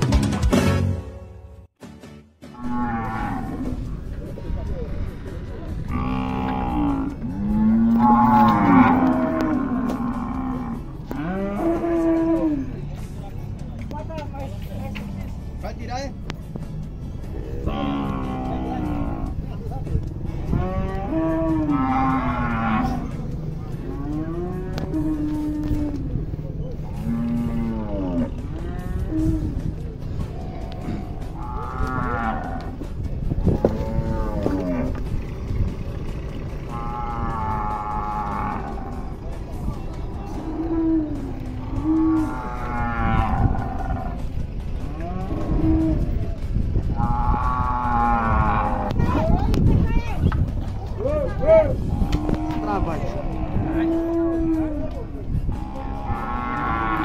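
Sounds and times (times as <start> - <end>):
cattle mooing: 2.6 - 4.0, 5.8 - 12.8, 17.4 - 19.5, 20.3 - 35.2, 35.8 - 49.4, 51.2 - 57.0.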